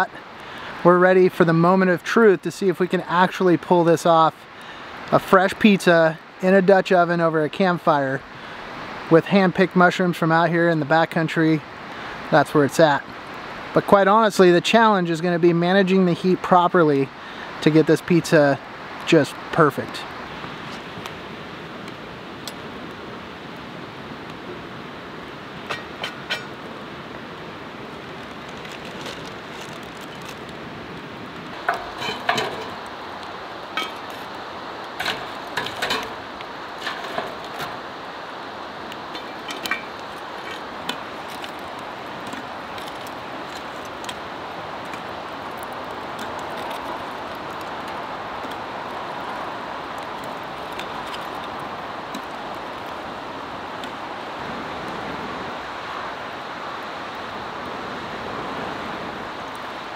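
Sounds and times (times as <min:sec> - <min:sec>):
steady rushing noise: 0:16.8 - 0:59.9
cast iron clinking: 0:25.6 - 0:26.6, 0:31.5 - 0:32.9, 0:33.7 - 0:34.3, 0:34.9 - 0:37.8, 0:39.0 - 0:41.6.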